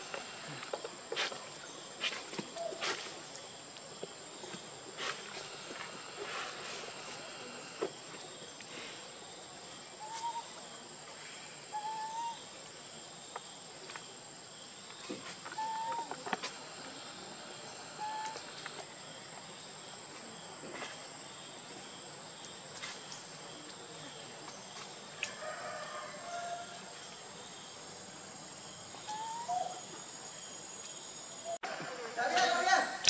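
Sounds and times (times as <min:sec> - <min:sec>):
high insect drone: 0:00.0 - 0:12.3.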